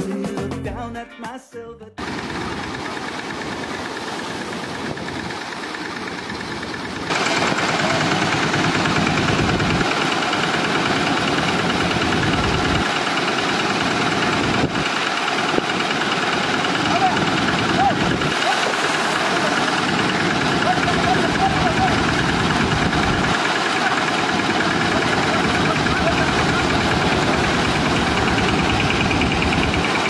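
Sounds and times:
vehicle engine running: 2.0 - 30.0.

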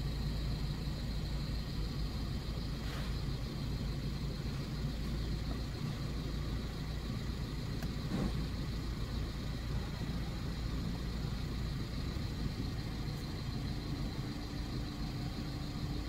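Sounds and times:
car engine idling: 0.0 - 16.0
faint click: 7.8 - 8.0.

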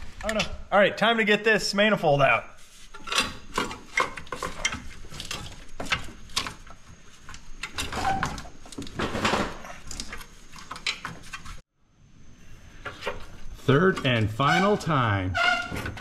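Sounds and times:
metallic clinks and scrapes: 2.7 - 6.7.

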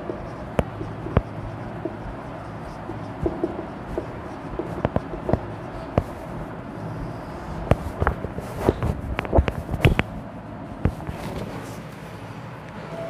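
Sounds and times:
handling knocks and clicks: 0.0 - 10.2
marker tapping and scraping on whiteboard: 0.0 - 10.2, 10.8 - 12.0
low background hum: 0.0 - 13.0.

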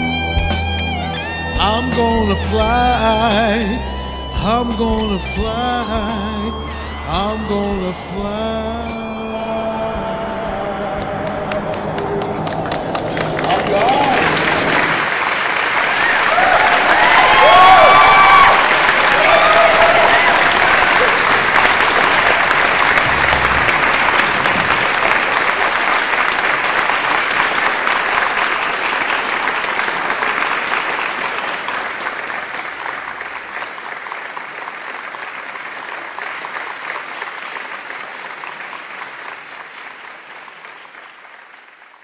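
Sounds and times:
audience applause: 10.6 - 42.0.

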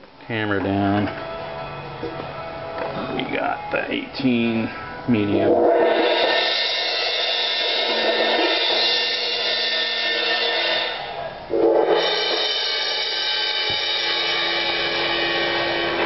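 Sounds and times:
cymbal ringing after strike: 5.6 - 16.0.

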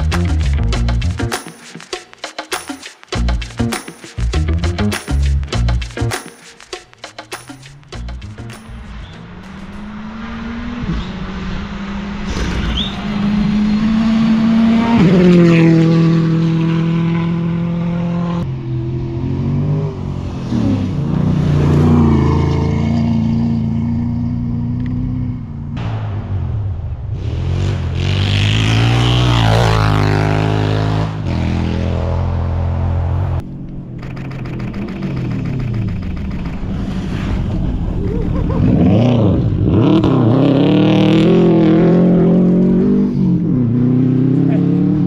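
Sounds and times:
dirt bike engine: 3.2 - 45.0
rally car engine passing: 9.0 - 45.0.

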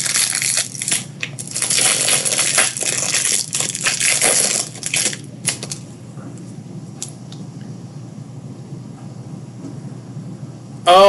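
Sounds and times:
foil wrapper crinkling: 0.0 - 5.8.

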